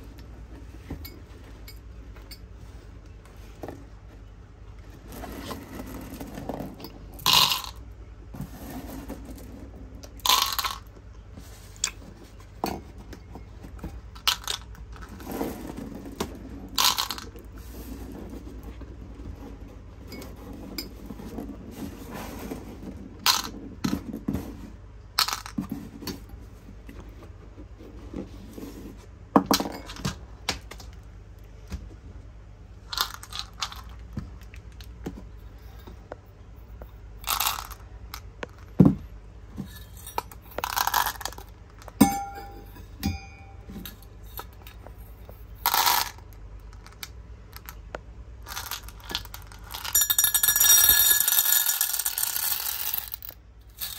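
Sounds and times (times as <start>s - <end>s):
faint low hum: 0.0s - 53.9s
small hard objects clinking: 5.4s - 7.8s, 8.6s - 10.9s, 14.1s - 17.4s, 37.2s - 38.7s, 39.7s - 44.8s, 48.4s - 53.9s.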